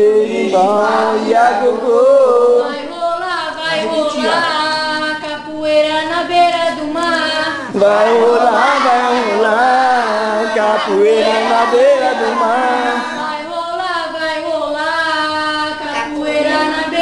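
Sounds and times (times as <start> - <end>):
voices singing: 0.0 - 17.0.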